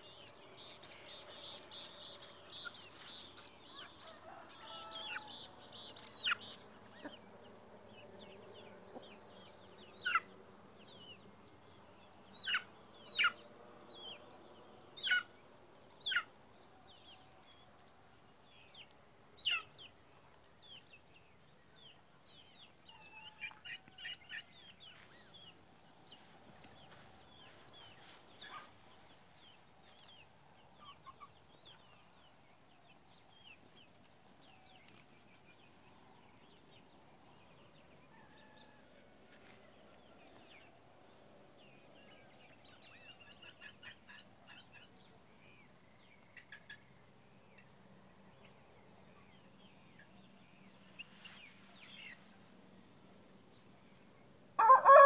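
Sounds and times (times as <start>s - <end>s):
faint chickens clucking: 0.0s - 10.9s, 22.7s - 25.6s
wild birds chirping: 0.0s - 55.0s.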